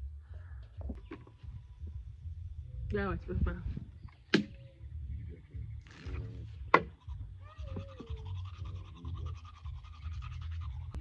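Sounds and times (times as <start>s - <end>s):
toothbrush scrubbing teeth: 7.9s - 11.0s.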